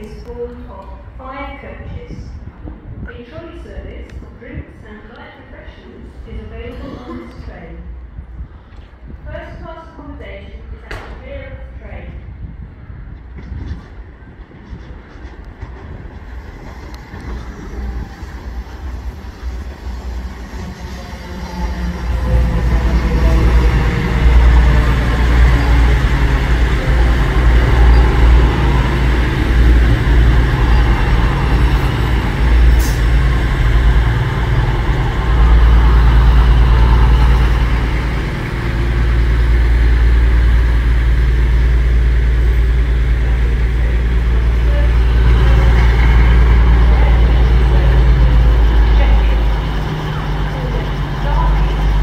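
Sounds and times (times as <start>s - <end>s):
diesel train engine humming: 11.7s - 52.0s.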